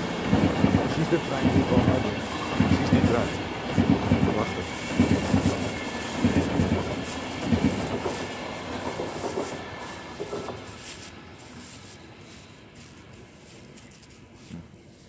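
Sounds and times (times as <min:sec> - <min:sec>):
train wheels clattering over rail joints: 0:00.0 - 0:11.2.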